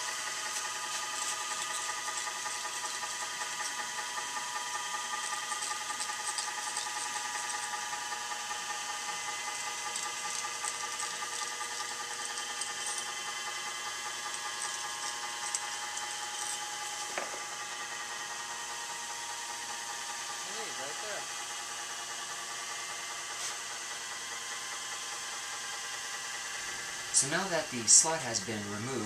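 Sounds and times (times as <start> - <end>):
steady machine hum: 0.0 - 29.0.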